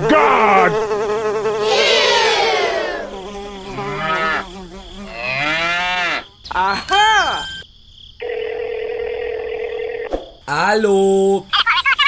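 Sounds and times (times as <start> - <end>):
cow mooing: 5.1 - 6.3.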